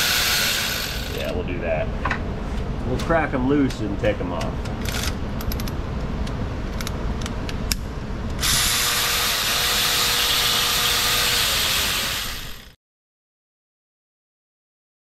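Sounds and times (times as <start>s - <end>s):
faint steady whine: 0.0s - 12.6s
low shop rumble: 0.0s - 12.8s
ratchet wrench clicking: 4.8s - 5.7s.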